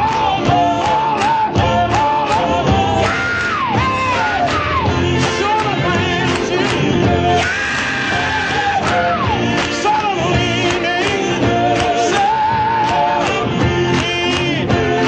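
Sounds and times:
gospel quartet singing: 0.0 - 15.0
instrumental backing with beat: 0.0 - 15.0.

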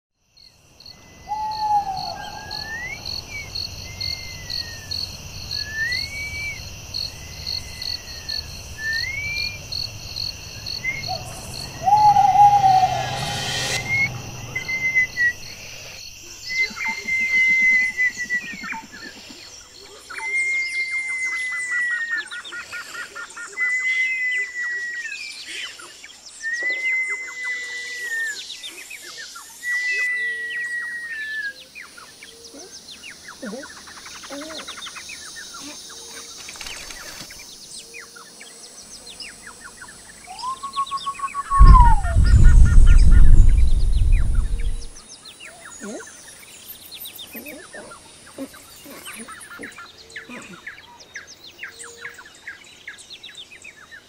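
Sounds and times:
crickets and insects trilling: 0.2 - 21.6, 32.3 - 45.0
daytime birdsong: 0.4 - 20.9
rush of noise: 10.0 - 16.0, 41.5 - 45.0.

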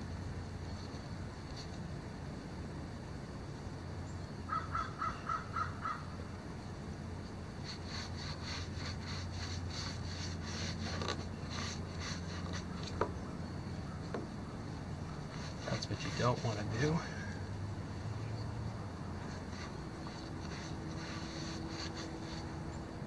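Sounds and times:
steady low hum: 0.0 - 23.0
bird calls: 4.4 - 6.2, 11.3 - 16.6
paintbrush strokes on wood: 7.6 - 13.1, 15.1 - 17.0, 19.2 - 22.8.

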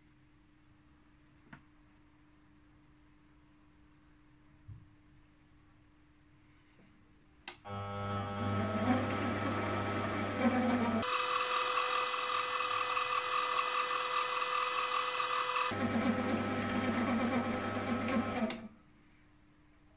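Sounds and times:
lathe motor and gear whine: 7.7 - 18.7.

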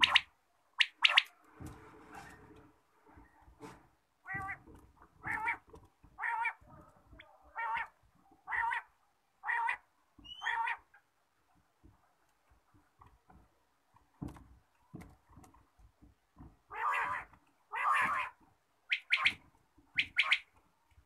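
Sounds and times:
quail calling: 6.2 - 10.9, 16.7 - 19.4, 20.0 - 20.5.

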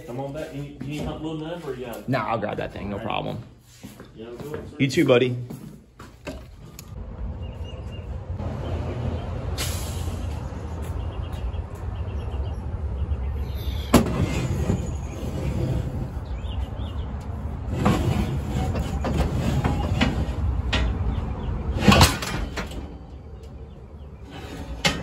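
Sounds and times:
steel plate clatter: 21.7 - 22.9.

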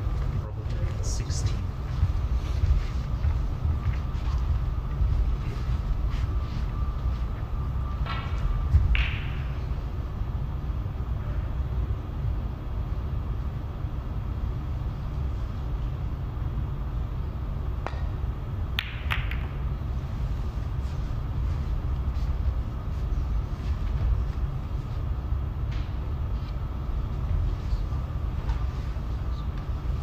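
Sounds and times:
low steady rumble: 0.0 - 30.0
cue tip striking ball: 8.9 - 9.6, 18.7 - 19.7
snooker balls clicking: 17.8 - 19.7.

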